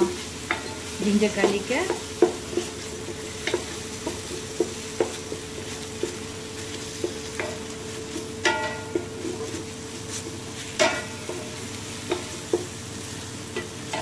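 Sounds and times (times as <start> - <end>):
wooden spatula knocking on pot: 0.0 - 9.6
spices frying with a sizzle: 0.0 - 14.0.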